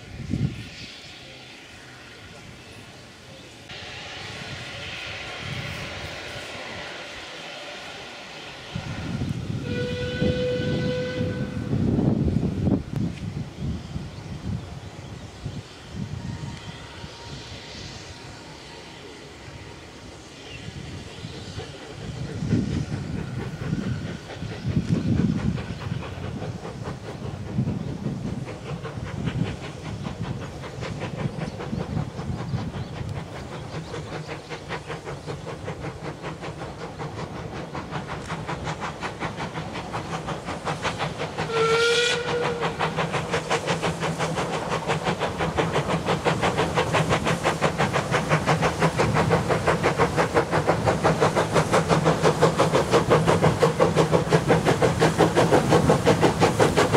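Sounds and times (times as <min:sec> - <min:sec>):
steam locomotive exhaust beating: 0:00.0 - 0:56.9
steam whistle blast: 0:03.7 - 0:11.8, 0:41.4 - 0:43.0.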